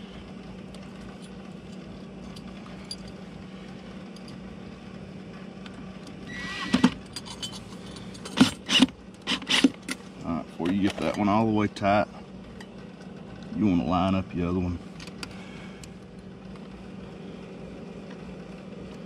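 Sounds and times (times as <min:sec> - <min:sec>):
faint steady hum: 0:00.0 - 0:19.0
cordless drill whining: 0:06.3 - 0:07.0.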